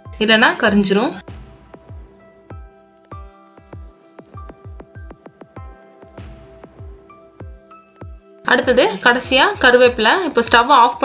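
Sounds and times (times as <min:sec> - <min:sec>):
low drum hits dropping in pitch: 0:01.2 - 0:08.2
electronic music: 0:01.2 - 0:10.6.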